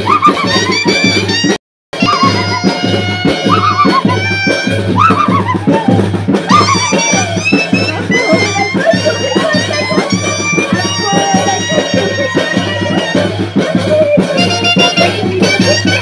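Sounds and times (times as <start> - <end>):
brass band melody: 0.0 - 16.0
steady bass drum beat: 0.0 - 16.0.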